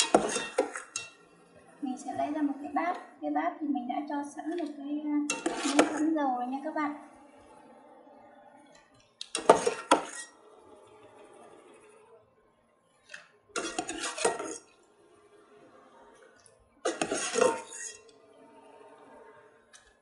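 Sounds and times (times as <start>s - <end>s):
metal skimmer scraping metal pot: 0.0s - 1.2s, 5.3s - 6.2s, 9.3s - 10.4s, 13.6s - 14.7s, 16.9s - 18.1s.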